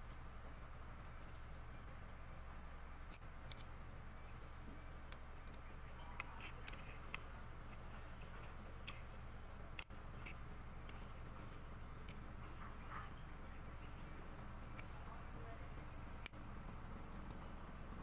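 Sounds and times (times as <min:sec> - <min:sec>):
low hum: 0:00.0 - 0:18.0
small metallic clicks and taps: 0:06.2 - 0:09.0.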